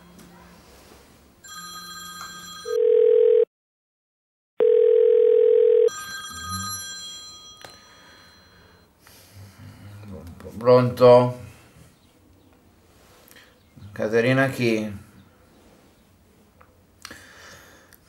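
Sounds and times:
telephone ringback tone: 1.4s - 3.5s, 4.6s - 8.9s.

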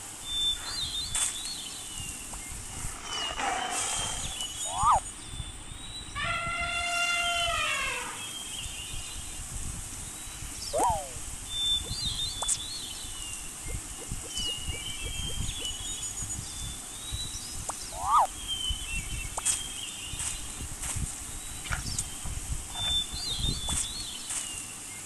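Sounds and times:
high bird chirps: 0.2s - 6.6s, 10.1s - 20.6s, 21.4s - 24.7s
animal call sliding down: 2.8s - 5.0s, 6.2s - 8.2s, 10.7s - 11.2s, 18.0s - 18.3s
short up-and-down animal calls: 6.2s - 8.2s
steady low rumble: 9.1s - 19.4s.

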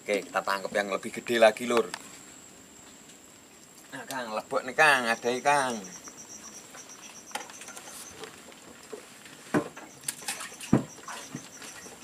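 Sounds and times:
faint high chirp: 4.8s - 8.3s, 9.8s - 12.0s.

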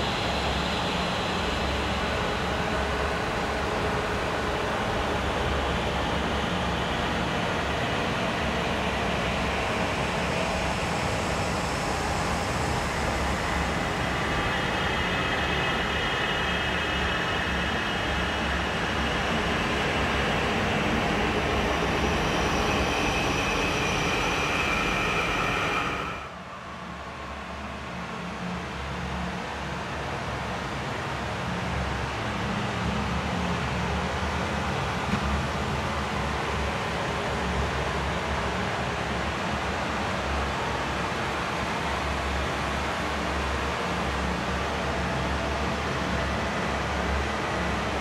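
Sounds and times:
faint high whining tones: 10.1s - 27.6s.

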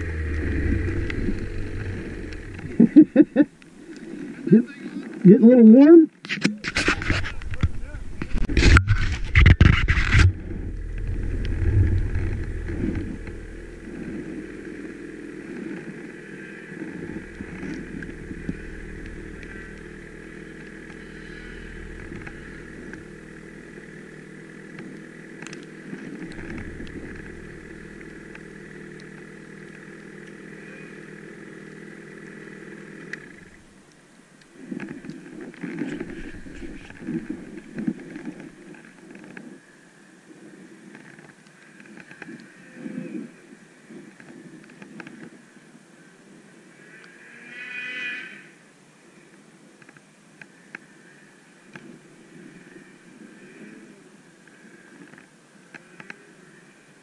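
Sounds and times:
snowmobile engine idling: 0.0s - 3.5s, 10.1s - 33.8s, 34.6s - 38.8s.

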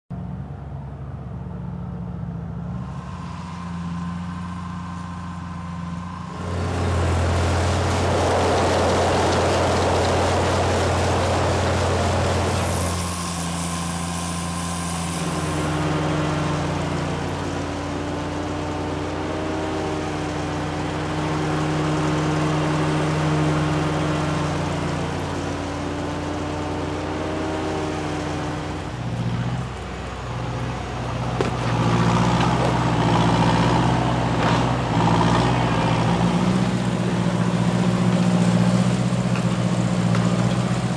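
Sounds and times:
heavy rushing noise: 2.8s - 17.8s
harvesting machinery engines running: 2.8s - 40.9s.

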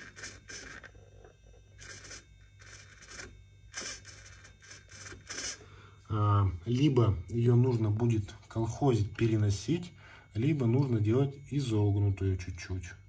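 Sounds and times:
steering servo whirring: 0.0s - 6.1s.

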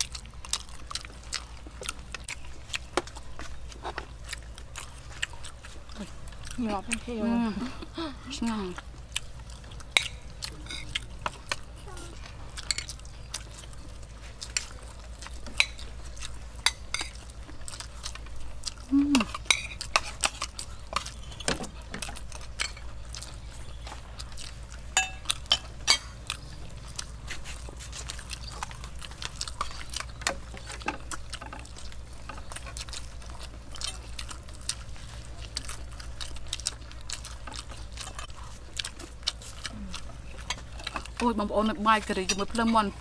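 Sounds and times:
chewing: 0.0s - 43.0s.

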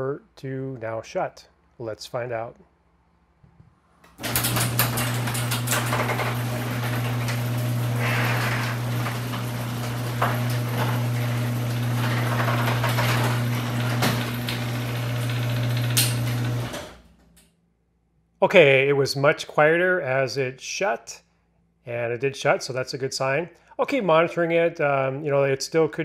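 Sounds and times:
garage door opener motor hum: 4.1s - 17.4s.

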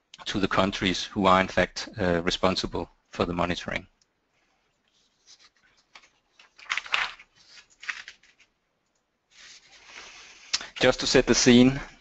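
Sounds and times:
faint rustles and clicks: 4.3s - 8.6s.

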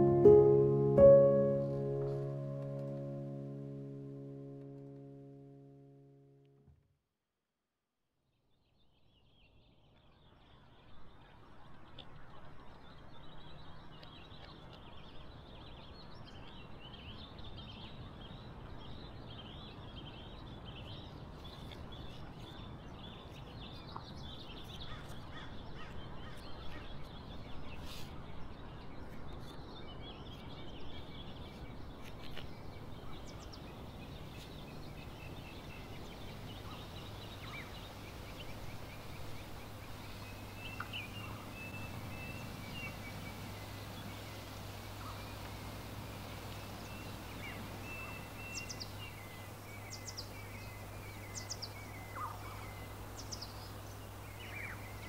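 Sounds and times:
birds chirping: 0.0s - 6.1s, 19.1s - 55.0s
low background noise: 0.0s - 6.6s, 9.8s - 55.0s.

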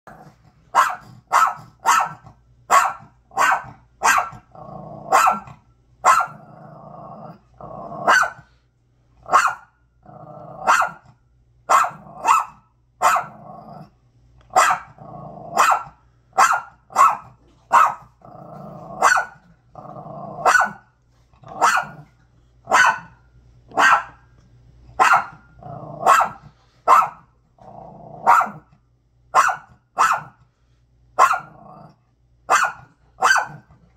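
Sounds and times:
small dog barking sharply: 0.8s - 4.4s, 5.1s - 6.4s, 8.1s - 8.4s, 9.3s - 9.7s, 10.7s - 11.0s, 11.7s - 13.3s, 14.5s - 14.9s, 15.6s - 18.1s, 19.0s - 19.4s, 20.4s - 20.8s, 21.6s - 22.0s, 22.7s - 24.2s, 25.0s - 25.4s, 26.0s - 27.2s, 28.2s - 28.6s, 29.4s - 30.4s, 31.2s - 31.5s, 32.5s - 33.6s
dog growling low: 4.5s - 5.2s, 6.3s - 8.1s, 10.0s - 10.7s, 13.3s - 14.0s, 14.9s - 15.6s, 18.1s - 19.0s, 19.7s - 20.5s, 25.6s - 26.6s, 27.6s - 28.3s.

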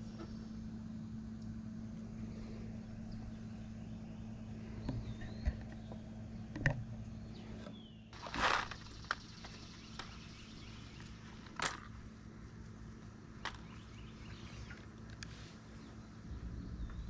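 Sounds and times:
low steady rumble: 0.0s - 17.0s
faint bird chirp: 2.3s - 11.4s, 13.5s - 17.0s
light metallic clicks and clinks: 9.0s - 12.0s.

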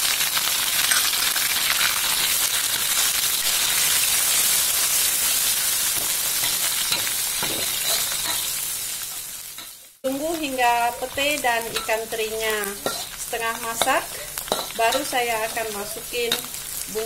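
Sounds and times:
food sizzling in hot oil: 0.0s - 17.0s
spatula stirring in wok: 11.1s - 16.9s.

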